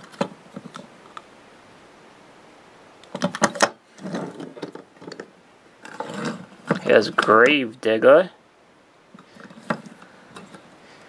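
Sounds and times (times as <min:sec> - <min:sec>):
plastic toy clattering on wood: 0:03.1 - 0:07.3, 0:09.2 - 0:10.6.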